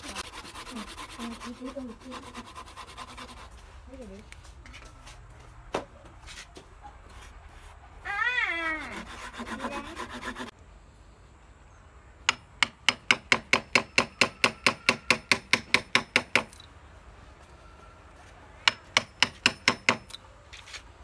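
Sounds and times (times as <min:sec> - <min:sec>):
hand saw rasping on wood: 0:00.0 - 0:03.6, 0:08.8 - 0:10.5.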